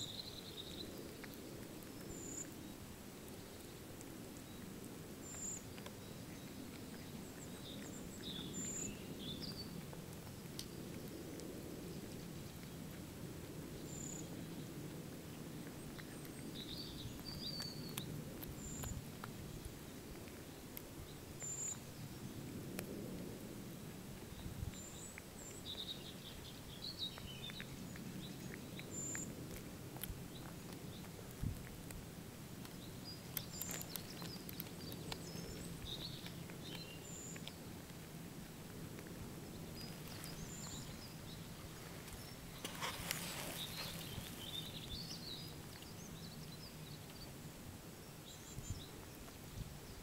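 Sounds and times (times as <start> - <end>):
small birds chirping: 0.0 - 23.0, 23.7 - 50.0
cat chewing and crunching bones: 0.0 - 50.0
low background noise: 0.0 - 50.0
birds chirping: 4.4 - 11.2, 15.8 - 20.0, 32.7 - 37.8, 39.4 - 47.3.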